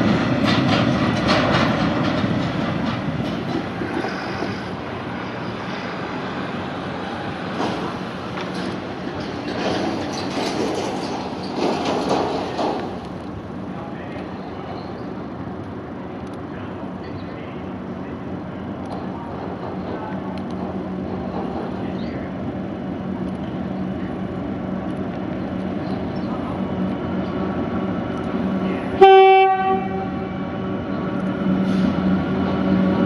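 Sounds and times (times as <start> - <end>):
diesel locomotive engine drone: 0.0 - 33.0
train horn blast: 29.0 - 30.4.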